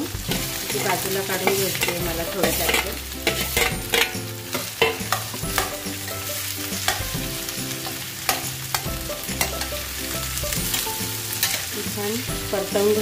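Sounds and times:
potatoes sizzling in oil: 0:00.0 - 0:13.0
steel spoon clinking against pan: 0:00.3 - 0:07.2, 0:07.8 - 0:09.9, 0:10.7 - 0:11.7.

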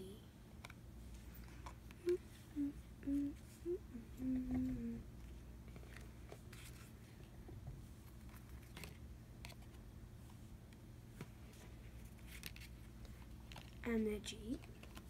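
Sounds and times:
person humming: 0:02.0 - 0:05.1
cards brushing and tapping: 0:11.1 - 0:13.8, 0:14.5 - 0:15.0.

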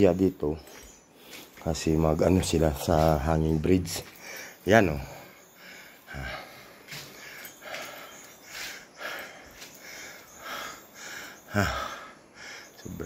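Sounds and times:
man breathing quickly: 0:00.6 - 0:01.6, 0:04.0 - 0:12.9.

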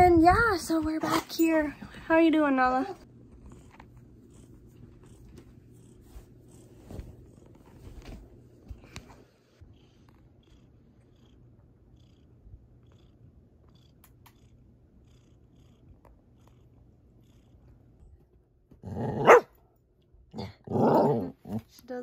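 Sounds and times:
cat purring: 0:03.0 - 0:18.8
dog barking: 0:19.1 - 0:19.6.

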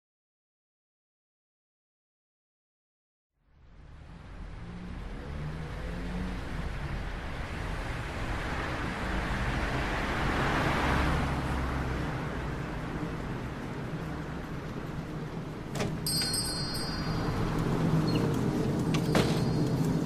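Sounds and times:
traffic rushing by: 0:03.5 - 0:20.0.

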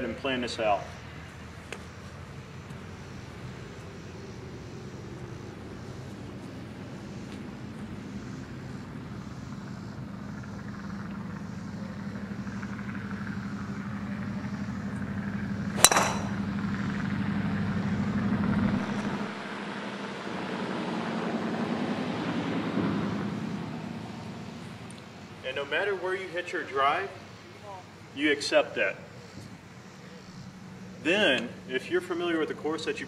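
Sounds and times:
engine drone: 0:00.0 - 0:33.0
golf driver striking ball: 0:15.8 - 0:16.5.

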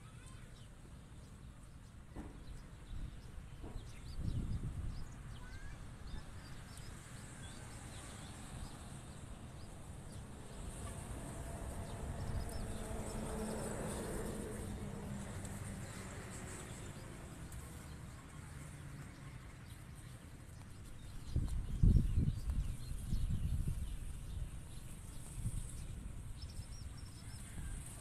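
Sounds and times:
wind rumble on microphone: 0:02.5 - 0:15.7, 0:20.5 - 0:28.0.

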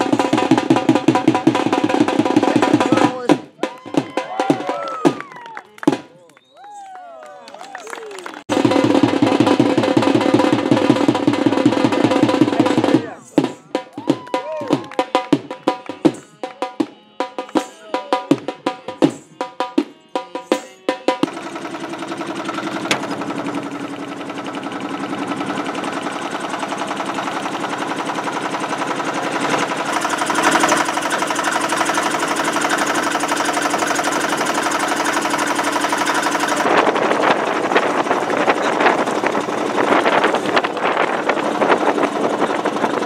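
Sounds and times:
boat engine running: 0:00.0 - 0:04.0, 0:08.4 - 0:13.9, 0:21.1 - 0:43.0.

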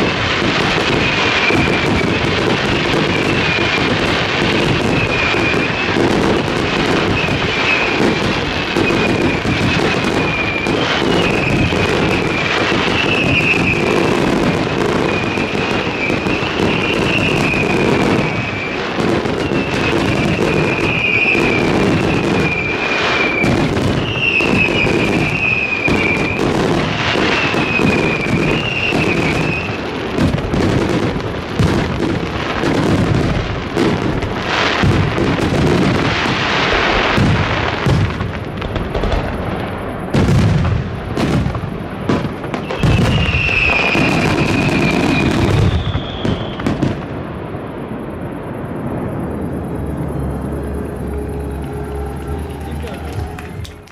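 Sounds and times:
fireworks bursts and crackling: 0:00.0 - 0:53.9
wavering high whistle: 0:10.1 - 0:14.3, 0:14.9 - 0:26.5, 0:27.2 - 0:29.8, 0:42.7 - 0:46.7, 0:49.2 - 0:53.9.

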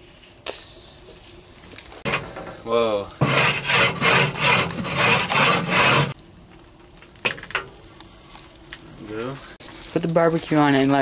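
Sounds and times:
wooden board scraping on steel: 0:03.2 - 0:06.2.

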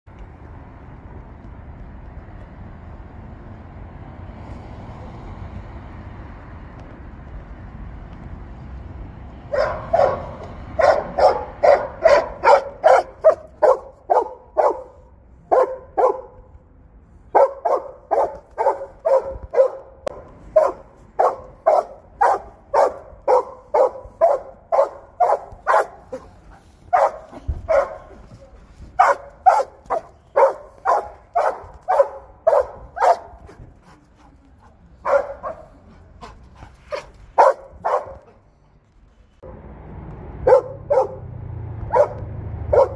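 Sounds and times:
dog barking: 0:09.5 - 0:16.4, 0:17.3 - 0:28.2, 0:29.0 - 0:33.5, 0:35.0 - 0:35.8, 0:36.9 - 0:38.3, 0:40.4 - 0:41.2, 0:41.9 - 0:42.9.

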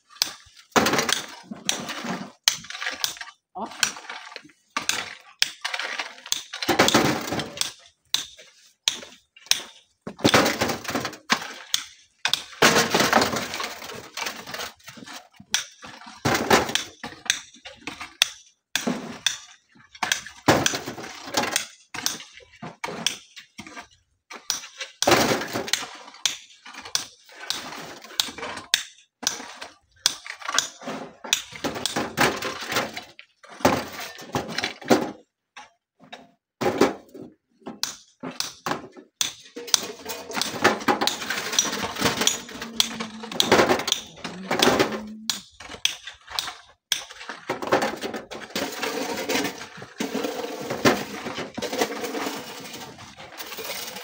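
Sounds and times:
shovels scraping through gravel: 0:00.1 - 0:09.8, 0:39.4 - 0:54.0
stones clattering into wheelbarrows: 0:00.1 - 0:35.3, 0:36.6 - 0:54.0.

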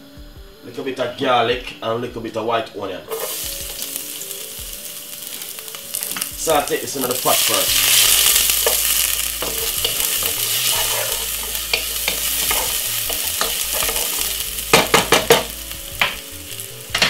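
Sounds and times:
wooden spoon stirring: 0:03.1 - 0:16.2
garlic and onion sizzling in oil: 0:03.1 - 0:17.0.

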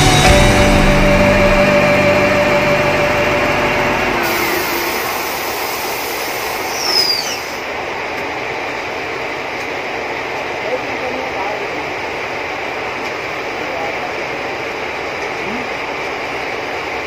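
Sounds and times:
diesel engine running: 0:00.0 - 0:07.8
high squeak: 0:04.0 - 0:07.6.

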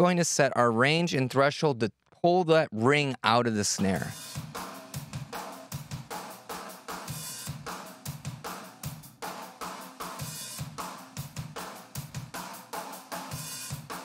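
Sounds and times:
rock drum kit beat: 0:03.8 - 0:14.0.

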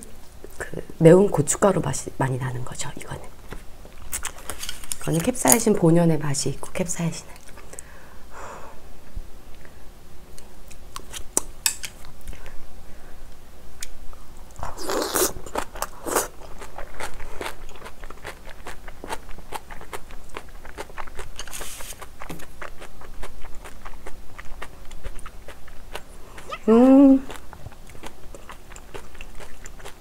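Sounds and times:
crisp chewing crunches: 0:14.6 - 0:30.0.

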